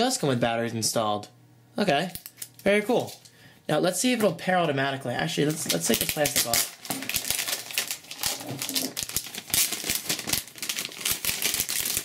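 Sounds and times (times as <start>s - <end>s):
plastic film crinkling: 2.2s - 3.3s, 5.3s - 12.0s.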